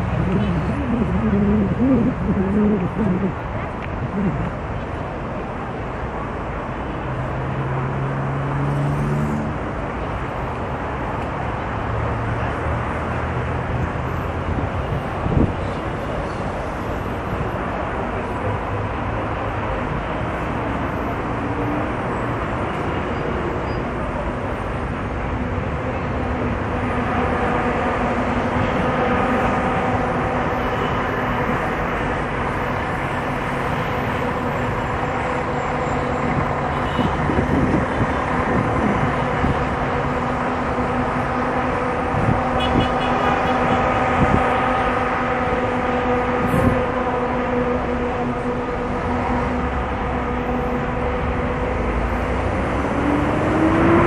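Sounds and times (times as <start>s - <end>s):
vehicle pitched hum: 0.0s - 6.4s
heavy city traffic roar: 0.0s - 54.0s.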